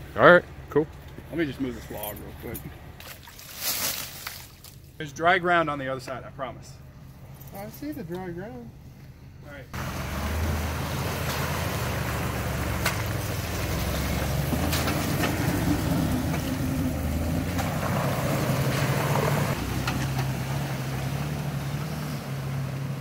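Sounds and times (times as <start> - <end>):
muddy water sloshing: 2.9 - 5.0
engine running at low revs: 9.8 - 23.0.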